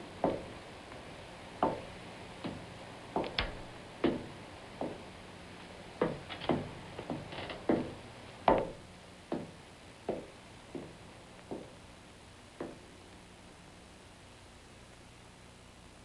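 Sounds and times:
sharp knocks: 0.2 - 0.5, 1.6 - 2.6, 3.2 - 5.0, 6.0 - 11.8.

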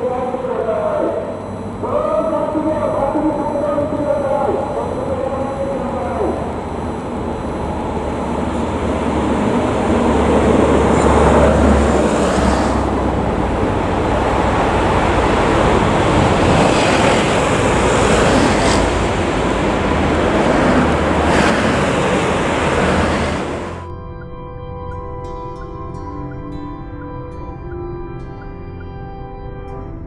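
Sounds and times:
passing vehicles hissing: 0.0 - 23.9
traffic road noise: 0.0 - 23.9.

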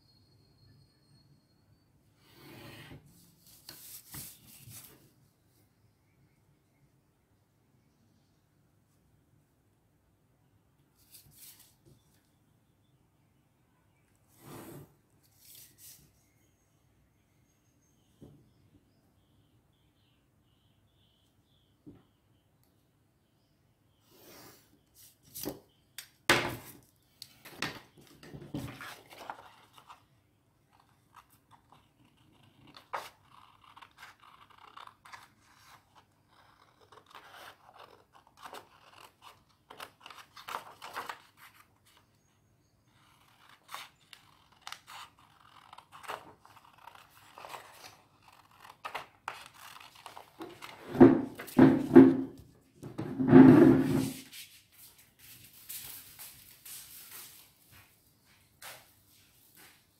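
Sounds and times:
paper rustling: 3.4 - 5.0, 11.0 - 11.8, 27.4 - 30.0, 30.8 - 42.0, 43.0 - 51.8
scissors snipping paper: 30.8 - 41.5, 43.0 - 50.8.

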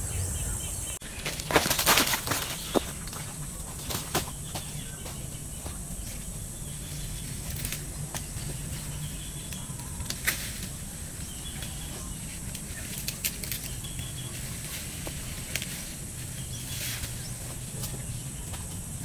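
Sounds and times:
insects droning: 0.0 - 19.0
shrub shoots snapping: 9.4 - 11.9.

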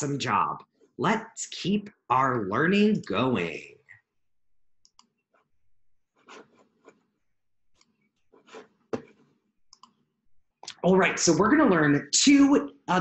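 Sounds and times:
faint clicks: 9.7 - 10.0.

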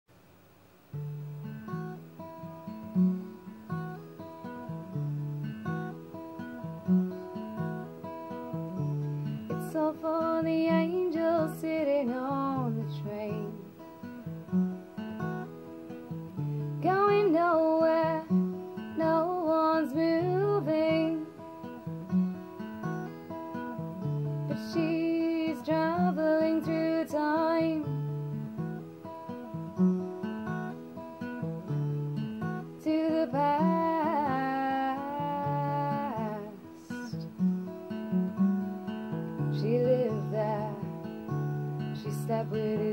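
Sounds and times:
acoustic guitar picking: 0.9 - 42.9
woman singing wordlessly: 9.4 - 13.7, 16.7 - 21.4, 24.5 - 28.0, 32.6 - 37.3, 39.4 - 41.1, 41.8 - 42.9.

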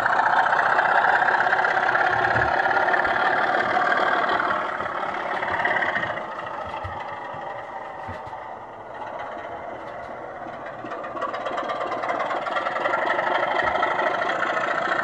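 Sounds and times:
diesel engine sound from small loudspeaker: 0.0 - 15.0.

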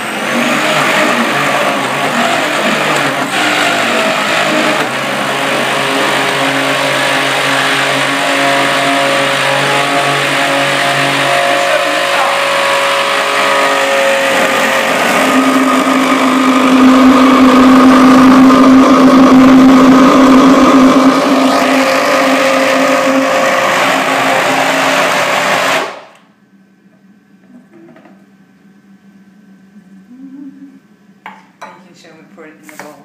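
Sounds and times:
blender motor running: 0.0 - 26.3.

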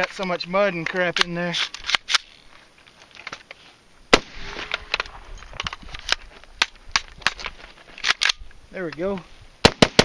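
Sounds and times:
rifle charging handle and bolt clacking: 4.6 - 9.1.

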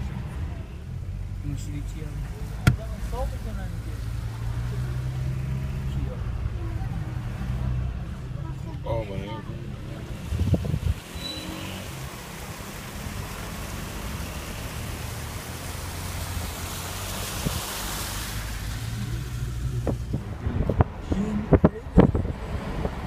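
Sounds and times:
car engine hum: 0.0 - 23.0
small waterfall splashing: 9.8 - 20.1.

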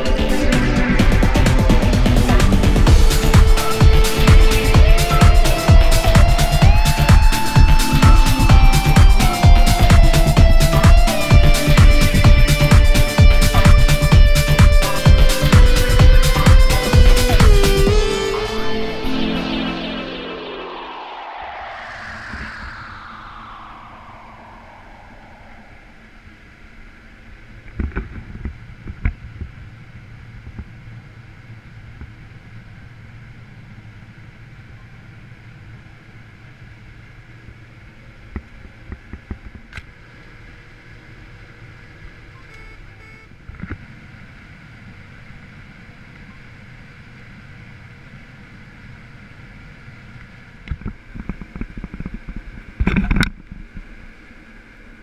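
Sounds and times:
combine harvester drone: 0.0 - 26.2.

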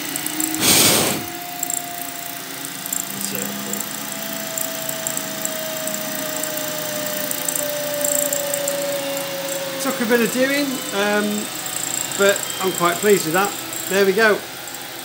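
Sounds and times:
milling machine cutting metal: 0.0 - 15.0
thin whine dropping in pitch: 0.0 - 15.0.

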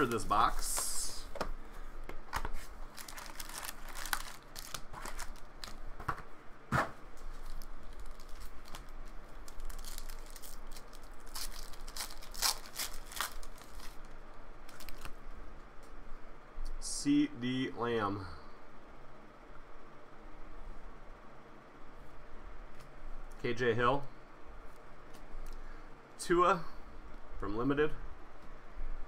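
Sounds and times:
cards being handled: 0.0 - 6.3, 7.2 - 14.0
wrappers tearing and crinkling: 2.5 - 5.8, 7.2 - 15.2.

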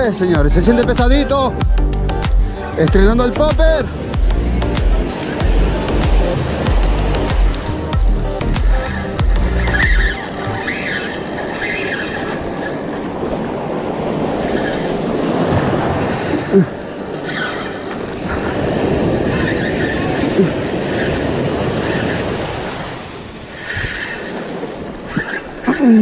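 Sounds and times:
short squeak: 9.5 - 12.4
surf breaking on beach: 10.3 - 25.7.

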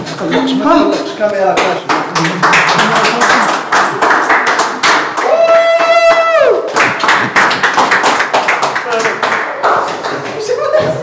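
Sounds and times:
group of people clapping: 1.4 - 11.0
long held shout: 5.2 - 6.7.

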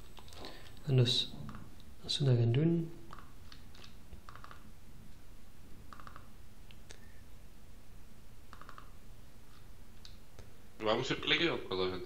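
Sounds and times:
computer mouse clicks: 3.1 - 4.7, 5.9 - 7.1, 8.5 - 9.0.

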